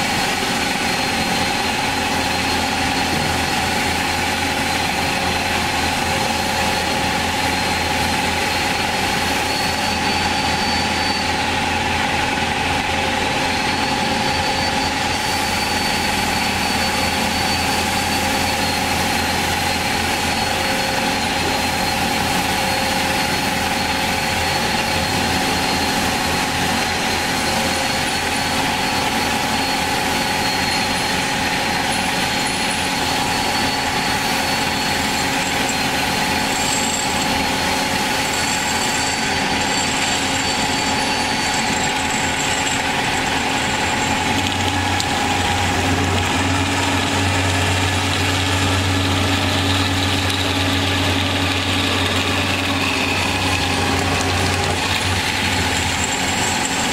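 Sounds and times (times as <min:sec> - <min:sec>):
band saw humming with high whine: 0:00.0 - 0:56.9.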